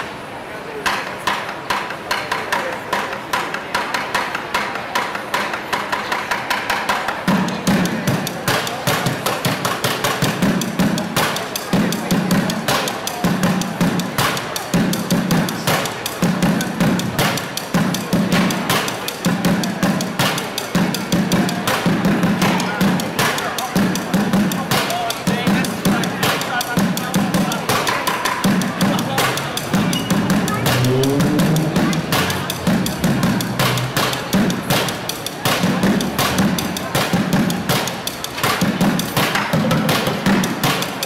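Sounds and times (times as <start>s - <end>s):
drumsticks beating plastic buckets: 6.8s - 41.0s
deep bass bucket strokes: 28.7s - 34.8s.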